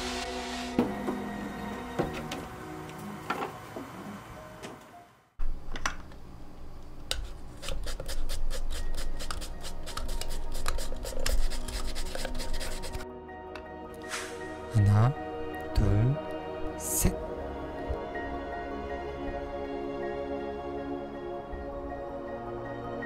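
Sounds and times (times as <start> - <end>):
knife and sandpaper scraping resin: 7.2 - 13.0.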